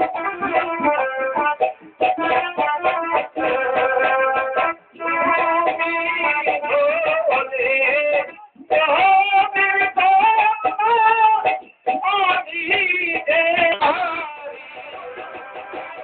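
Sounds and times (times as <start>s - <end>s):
instrumental backing: 0.0s - 16.0s
high voice singing: 3.5s - 15.3s.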